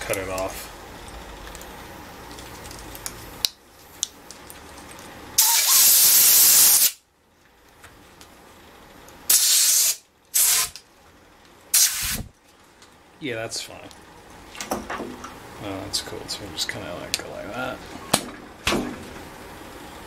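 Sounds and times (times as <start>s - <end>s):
compressed air blow gun hissing: 5.4s - 7.0s, 9.3s - 10.8s, 11.7s - 12.3s.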